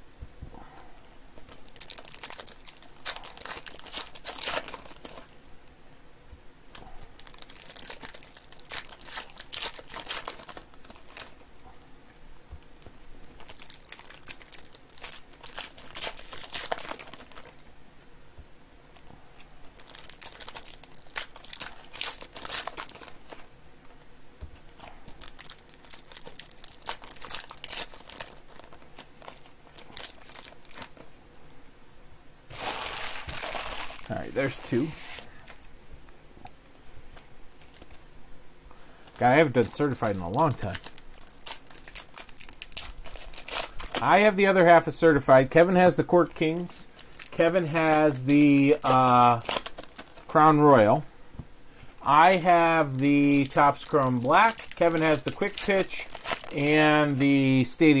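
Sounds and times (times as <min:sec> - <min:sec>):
foil wrappers crinkling and tearing: 0:01.4 - 0:05.4, 0:06.8 - 0:11.4, 0:13.2 - 0:17.7, 0:19.0 - 0:23.5, 0:24.6 - 0:31.1, 0:32.5 - 0:35.7, 0:37.6 - 0:38.0, 0:39.0 - 0:50.6, 0:52.0 - 0:58.0.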